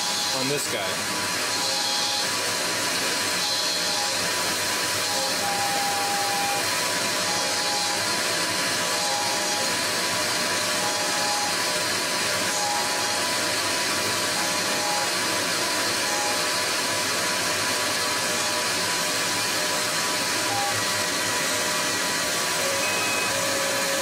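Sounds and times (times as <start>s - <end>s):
lathe whirring hiss: 0.0s - 24.0s
short higher whines: 19.7s - 24.0s.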